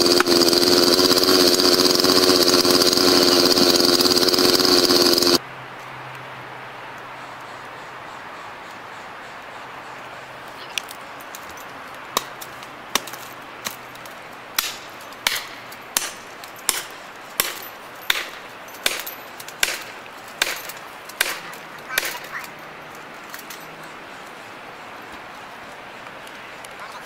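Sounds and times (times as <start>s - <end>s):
axe hammering a wedge: 14.6s - 20.6s.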